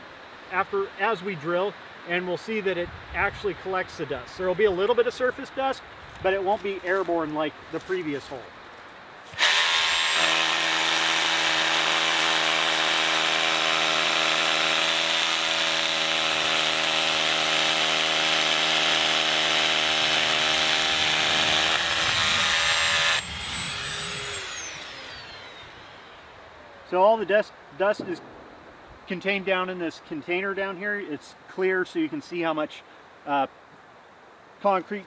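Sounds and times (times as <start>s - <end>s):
rotary hammer drilling concrete: 9.3s - 26.2s
dust extractor motor whine: 9.4s - 26.4s.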